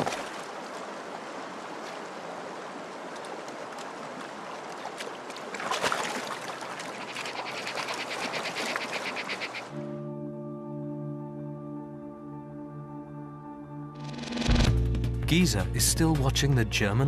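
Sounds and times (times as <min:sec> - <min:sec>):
rushing water: 0:00.0 - 0:09.8.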